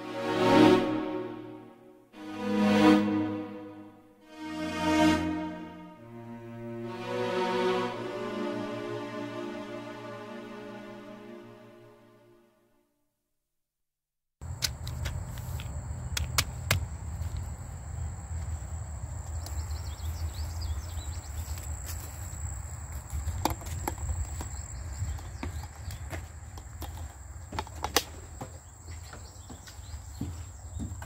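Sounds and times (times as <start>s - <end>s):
footsteps: 14.6s - 31.0s.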